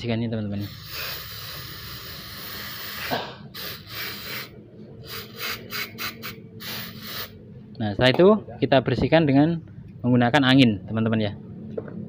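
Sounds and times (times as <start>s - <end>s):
aerosol spray hissing: 0.6s - 7.4s.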